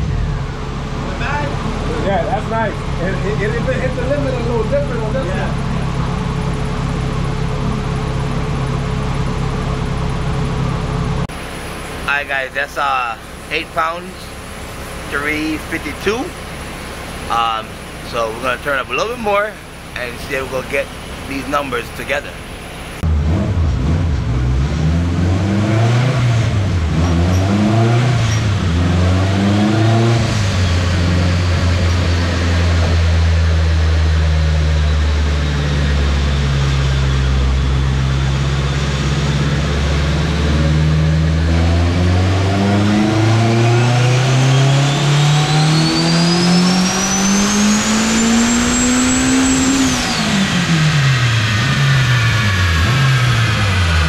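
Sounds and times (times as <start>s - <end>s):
high turbo whine: 0.0s - 54.0s
turbocharged car engine revving: 0.0s - 54.0s.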